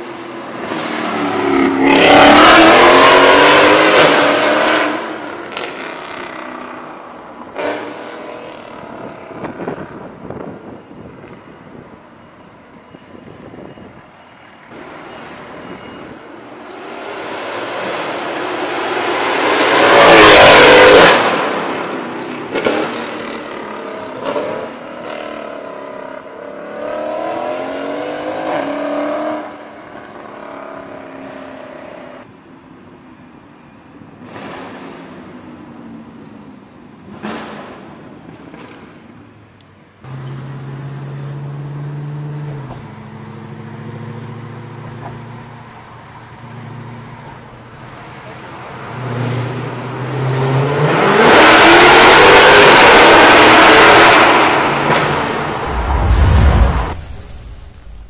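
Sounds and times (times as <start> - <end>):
car engine accelerating past: 50.4 - 58.0.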